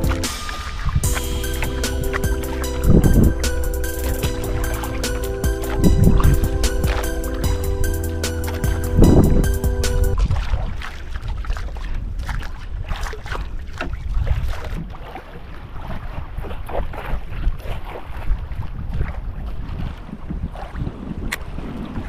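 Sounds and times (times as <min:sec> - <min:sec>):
wind buffeting microphone: 0:00.0 - 0:22.0
water slapping against boat hull: 0:08.4 - 0:22.0.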